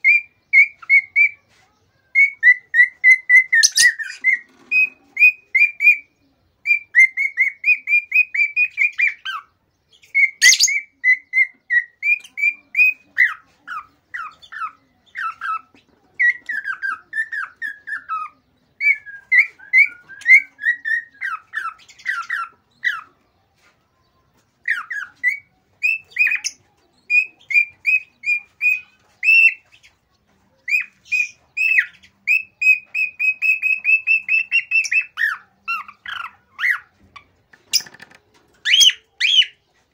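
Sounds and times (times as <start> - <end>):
cockatiel whistling chirps: 30.7 - 36.9.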